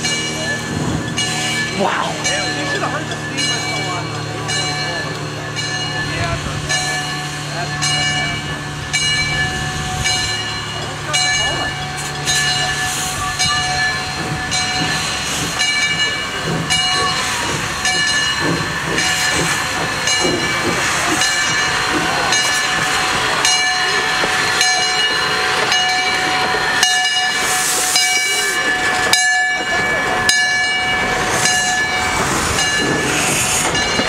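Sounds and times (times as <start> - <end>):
locomotive bell ringing: 0.0 - 34.0
steam locomotive moving: 0.0 - 34.0
steam hissing: 11.6 - 29.1, 30.5 - 34.0.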